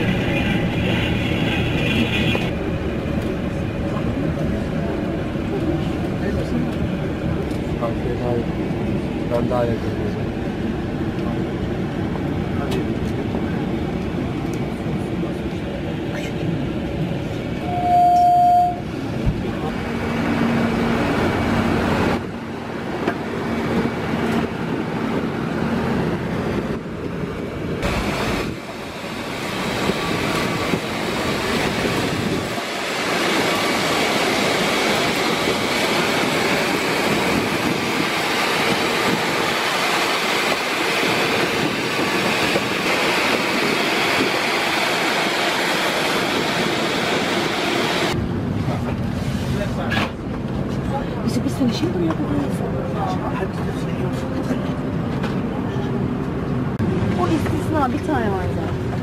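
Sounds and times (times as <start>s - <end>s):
loud held horn tone: 17.6s - 18.9s
airport apron rumble and hiss: 47.1s - 56.0s.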